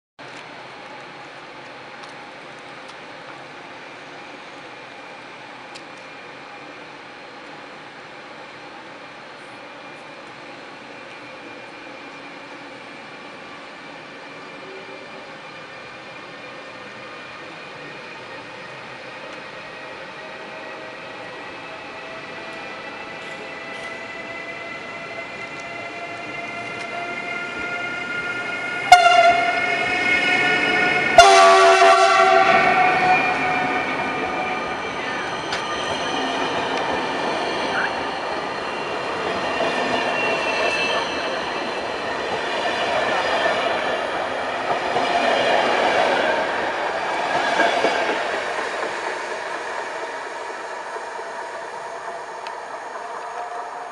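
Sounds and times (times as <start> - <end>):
train coaches rolling on rails: 0.2 - 53.9
electric locomotive whine: 0.3 - 53.9
train horn blasts: 28.9 - 29.6, 31.2 - 33.7.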